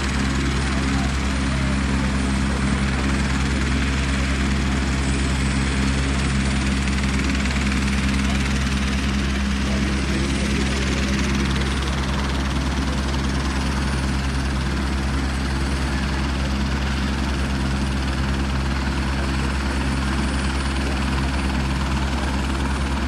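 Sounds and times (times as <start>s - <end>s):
helicopter droning: 0.0s - 23.0s.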